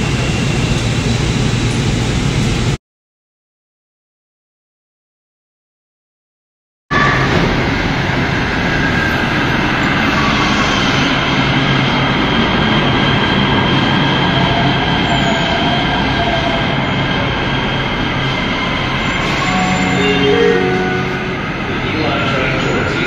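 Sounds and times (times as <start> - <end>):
train wheels rumbling on rail: 7.1 - 23.0
high steady tones: 19.0 - 22.6.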